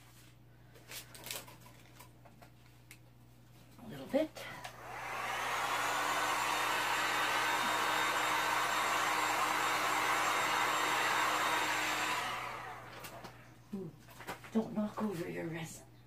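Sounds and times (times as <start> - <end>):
heat gun fan blowing: 4.6 - 13.6
heat gun winding down: 4.7 - 13.4.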